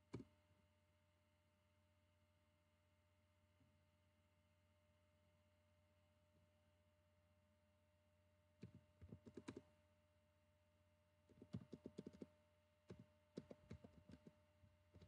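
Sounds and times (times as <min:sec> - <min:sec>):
faint keyboard typing: 0:08.6 - 0:09.7, 0:11.3 - 0:15.0.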